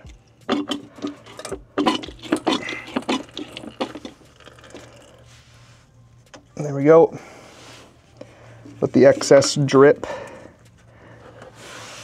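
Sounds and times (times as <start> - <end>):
hand pump squishing and clicking: 0.0 - 5.2.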